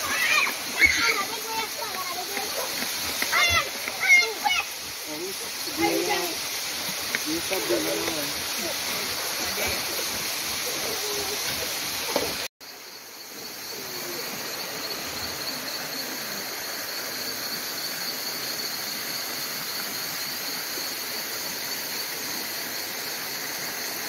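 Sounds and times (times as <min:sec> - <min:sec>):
crickets trilling: 0:00.0 - 0:24.0.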